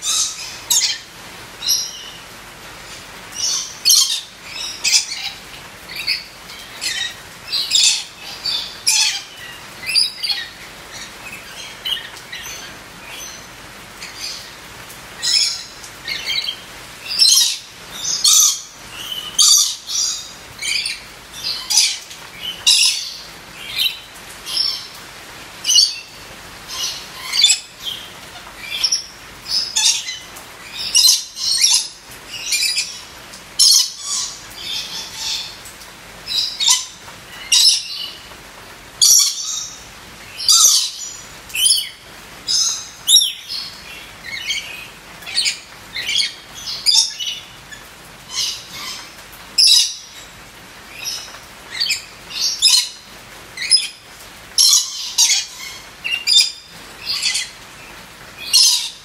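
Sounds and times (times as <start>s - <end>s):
parrot high-pitched calls: 0.0s - 2.2s, 2.8s - 14.6s, 15.2s - 25.0s, 25.6s - 35.7s, 36.3s - 38.3s, 39.0s - 50.3s, 51.0s - 57.7s, 58.3s - 59.0s.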